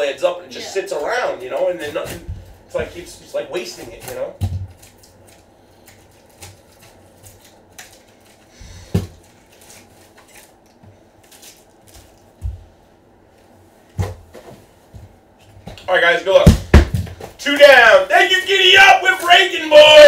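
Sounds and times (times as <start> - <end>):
dull thumps: 16.4 - 17.4.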